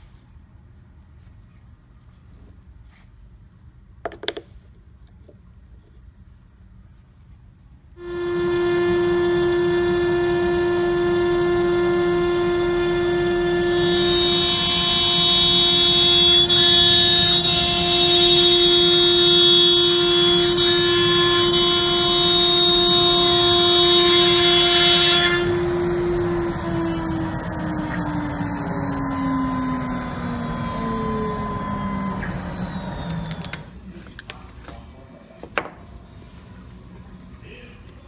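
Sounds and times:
cutting and extraction hiss: 0:08.0 - 0:33.7
router spindle high whine: 0:08.0 - 0:33.8.

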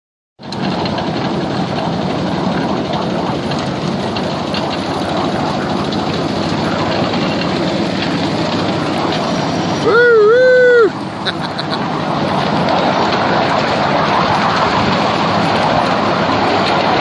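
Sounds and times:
miniature train wheels on rails: 0:00.4 - 0:17.0.

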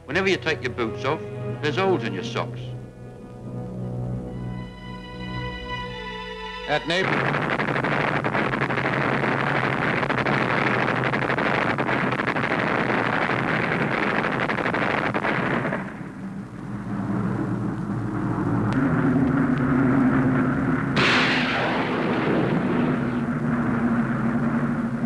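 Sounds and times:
warplane engine drone: 0:00.0 - 0:25.0
explosions: 0:06.7 - 0:25.0
gunfire crackle: 0:06.8 - 0:25.0.

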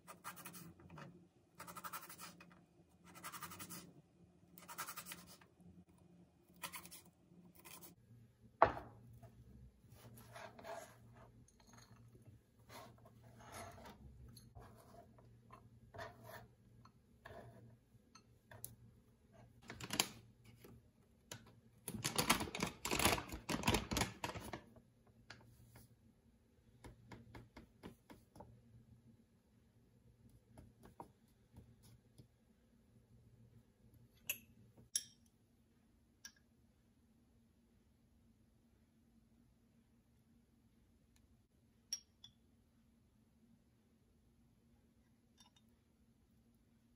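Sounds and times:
knife and bowl taps and scrapes: 0:08.6 - 0:09.4, 0:10.0 - 0:18.8, 0:45.4 - 0:45.7.

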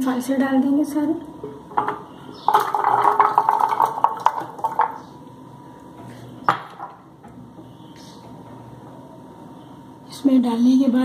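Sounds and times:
berries rattling in plastic jar: 0:02.4 - 0:05.0.

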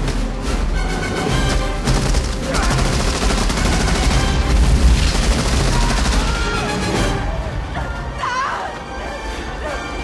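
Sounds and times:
rapid automatic gunfire: 0:01.8 - 0:06.7.

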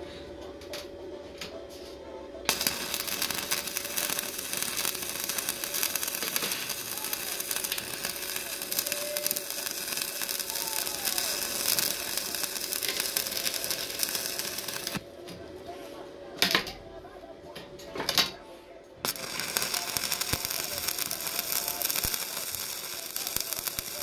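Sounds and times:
welding arc crackling: 0:02.5 - 0:15.0, 0:19.0 - 0:24.0.

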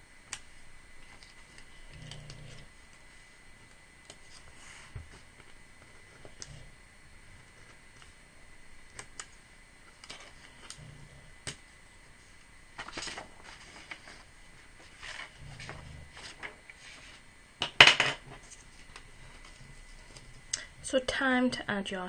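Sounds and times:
paper rustling: 0:12.3 - 0:17.3.

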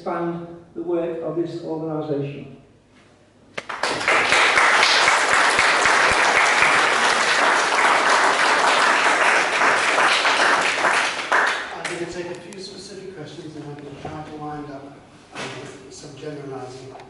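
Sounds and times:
audience applauding: 0:03.6 - 0:12.2.

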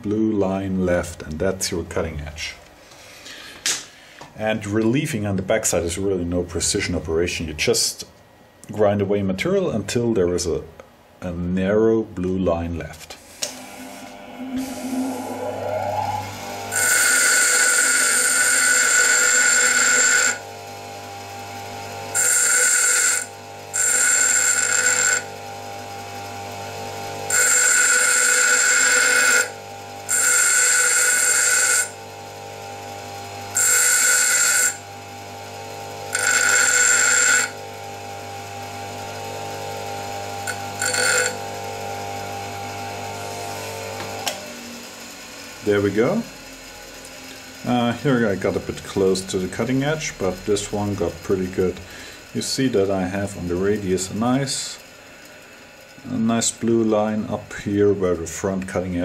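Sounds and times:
hissing metal grinding: 0:13.2 - 0:20.4, 0:36.1 - 0:37.6, 0:40.2 - 0:41.6, 0:45.2 - 0:57.6
bench grinder humming: 0:13.2 - 0:59.0.

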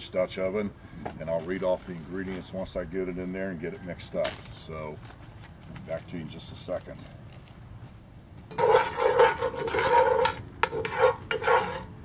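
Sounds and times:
wooden spatula scraping pan: 0:08.5 - 0:12.0.

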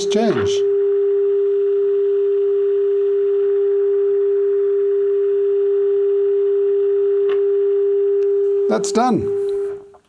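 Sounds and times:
steady tone from radio loudspeaker: 0:00.0 - 0:00.9, 0:08.3 - 0:10.0.

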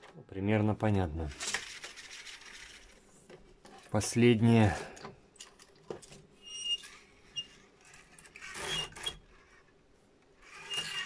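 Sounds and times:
tape reel rubbing and rustling: 0:01.1 - 0:04.2, 0:06.1 - 0:11.0.

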